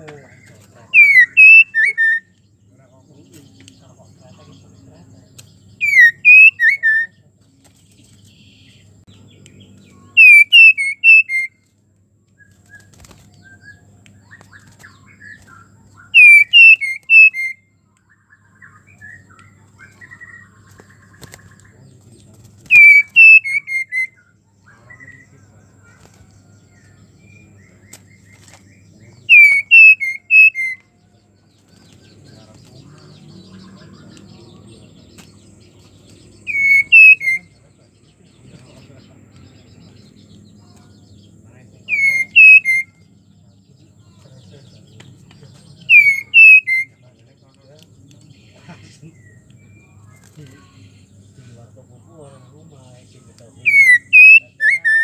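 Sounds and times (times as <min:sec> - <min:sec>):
faint bird twittering: 0:00.0 - 0:55.0
bird whistling notes: 0:00.9 - 0:02.3, 0:05.8 - 0:07.1, 0:10.1 - 0:11.6, 0:12.4 - 0:17.7, 0:22.7 - 0:24.3, 0:29.2 - 0:30.9, 0:36.4 - 0:37.6, 0:41.9 - 0:43.1, 0:45.9 - 0:47.0, 0:53.6 - 0:55.0
bird whistled call note: 0:05.8 - 0:07.0, 0:36.5 - 0:37.4, 0:41.9 - 0:43.0, 0:45.9 - 0:46.9, 0:53.7 - 0:55.0
soft bird chips: 0:25.0 - 0:37.5, 0:45.0 - 0:51.5.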